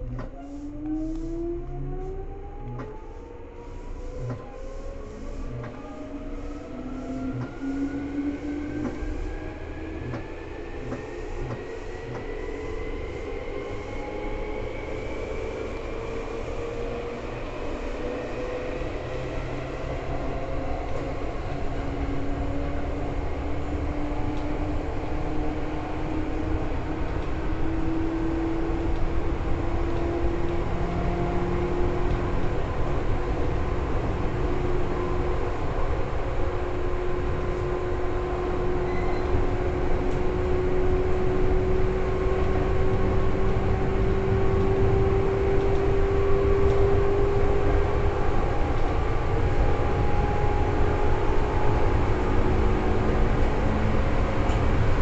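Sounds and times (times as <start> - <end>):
train wheels on rail: 0.0 - 55.0.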